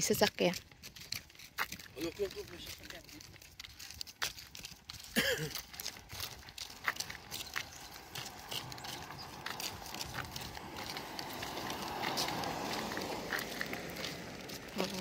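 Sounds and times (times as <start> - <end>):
car driving past: 6.8 - 15.0.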